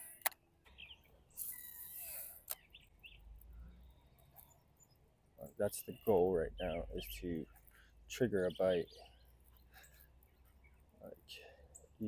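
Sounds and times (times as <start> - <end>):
small birds chirping: 0.0 - 12.0
fishing reel whirring: 1.3 - 2.6
fishing reel clicking: 1.4 - 2.6.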